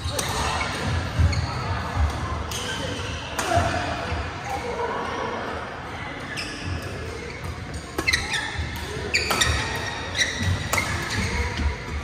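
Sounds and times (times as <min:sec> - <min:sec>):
other games in hall: 0:00.0 - 0:12.0
shoes squeaking: 0:06.3 - 0:12.0
racket hitting shuttlecock: 0:07.2 - 0:12.0.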